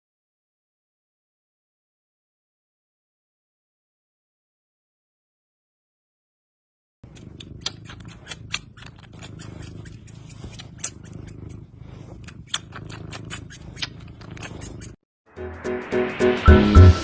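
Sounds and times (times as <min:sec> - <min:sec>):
cat purring: 0:07.0 - 0:15.0
cat teeth clicking while chewing: 0:07.1 - 0:11.0.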